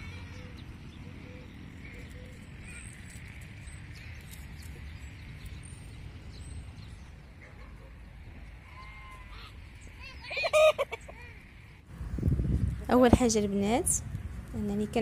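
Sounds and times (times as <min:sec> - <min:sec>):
small birds chirping: 0:00.0 - 0:11.9
low outdoor background: 0:00.0 - 0:15.0.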